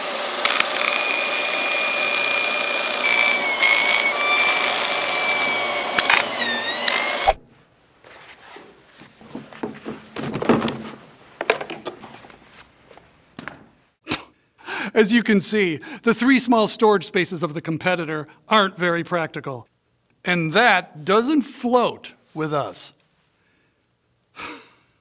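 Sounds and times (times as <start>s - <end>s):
table saw blade whine: 0.0s - 7.4s
knocks and thuds into plastic bins: 9.2s - 11.9s.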